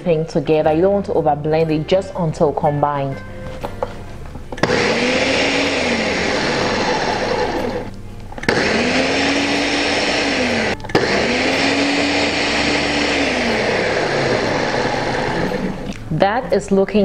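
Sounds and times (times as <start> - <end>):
blender motor pulsing: 4.6 - 16.0.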